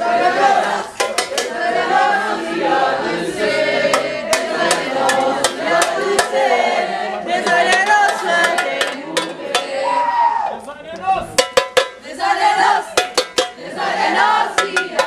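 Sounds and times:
group chanting in unison: 0.0 - 10.3, 12.0 - 15.0
sharp knocks or claps: 0.9 - 1.7, 3.9 - 6.6, 7.4 - 9.8, 13.0 - 13.6, 14.6 - 15.0.

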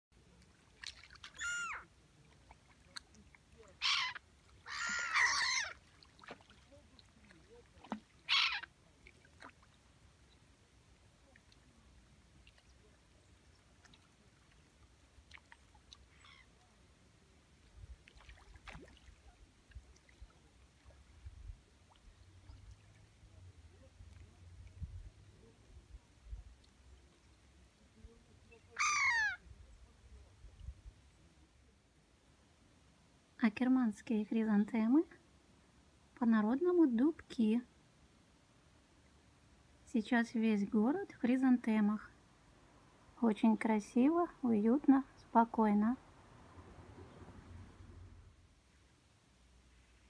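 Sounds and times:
water lapping faintly: 0.1 - 50.0
gulls squawking: 1.3 - 1.8, 3.8 - 5.8, 28.8 - 29.4.

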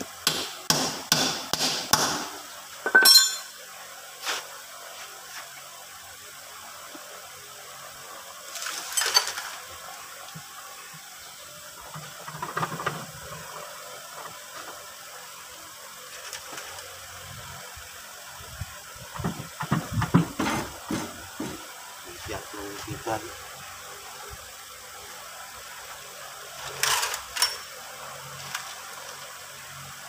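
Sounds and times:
faint steady hiss: 0.0 - 30.0
sharp metal strikes: 0.2 - 3.6.

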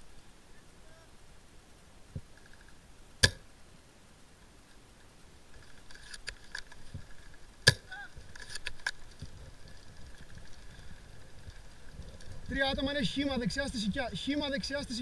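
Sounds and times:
airsoft rifle shots cracking: 3.2 - 3.5.

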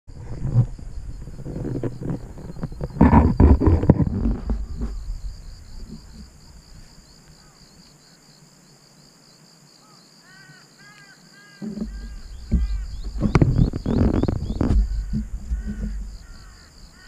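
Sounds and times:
wind buffeting microphone: 0.1 - 7.0, 11.6 - 17.0
distant birds chirping: 0.6 - 8.4, 9.8 - 17.0.

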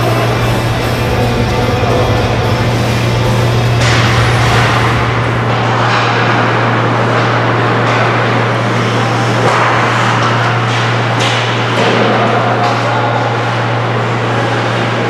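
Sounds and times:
noisy hiss: 0.0 - 6.7
low hum: 0.0 - 12.2.

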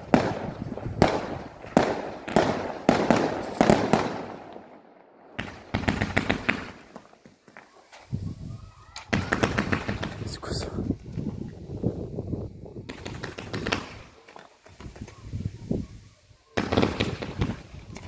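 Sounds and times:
fireworks bangs: 0.0 - 7.6, 9.0 - 10.6, 12.8 - 15.5, 16.5 - 18.0
fireworks crackling: 0.0 - 18.0.

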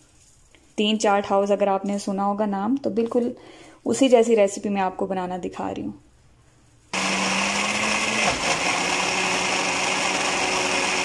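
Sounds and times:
blender grinding paste: 7.0 - 11.0.

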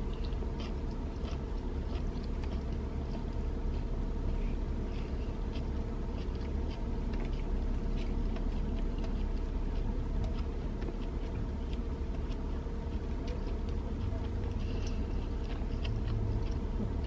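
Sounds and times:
low hum inside parked car: 0.0 - 17.0.

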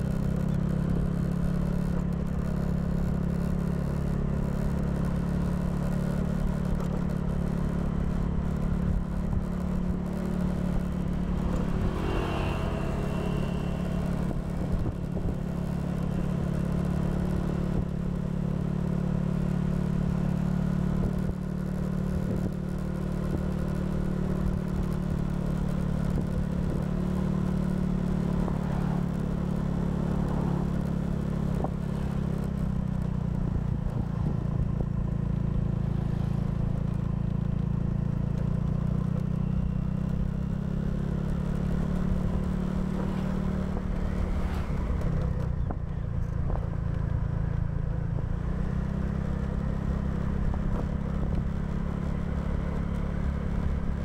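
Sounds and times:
scooter engine running: 0.0 - 54.0.

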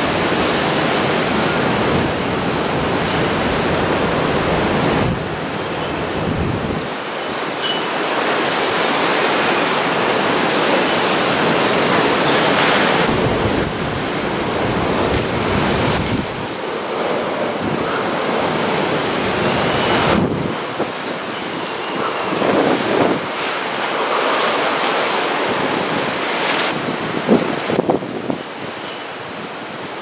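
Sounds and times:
heavy rain: 0.0 - 30.0
strong gusting wind: 0.0 - 30.0.

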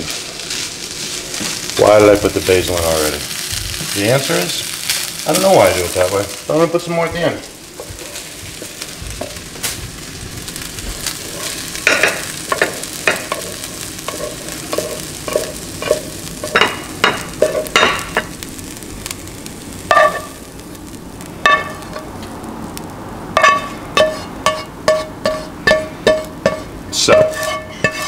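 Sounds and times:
spatula scraping rice in skillet: 10.5 - 18.3, 23.4 - 28.0.

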